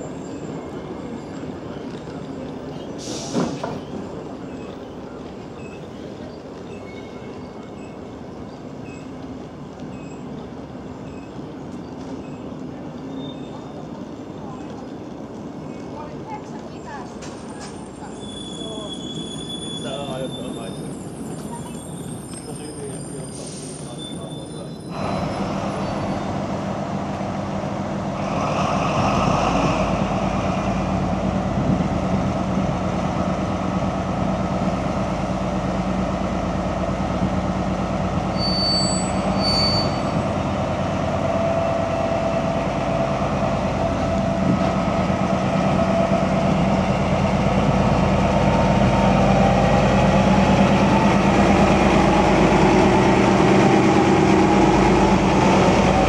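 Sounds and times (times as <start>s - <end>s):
diesel locomotive engine running: 24.9s - 56.0s.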